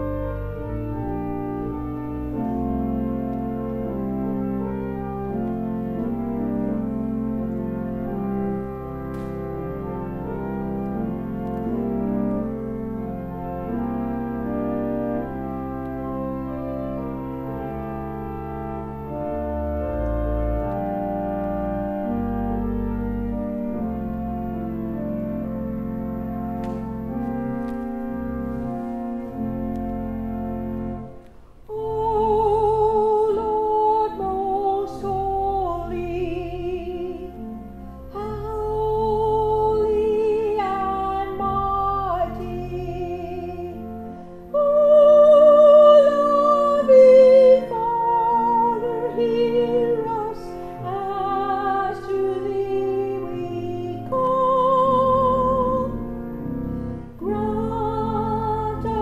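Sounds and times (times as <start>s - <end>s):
pipe organ chords: 0.0s - 59.0s
woman singing with vibrato: 31.7s - 37.4s, 38.1s - 43.9s, 44.5s - 55.9s, 57.2s - 59.0s.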